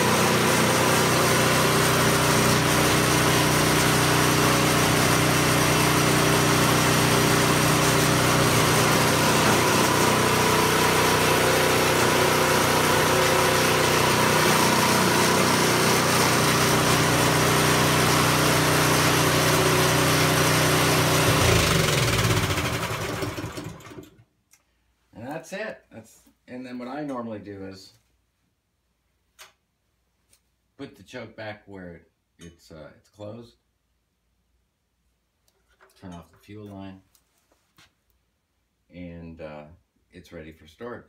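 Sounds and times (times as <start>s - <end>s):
snow thrower engine running: 0.0s - 24.2s.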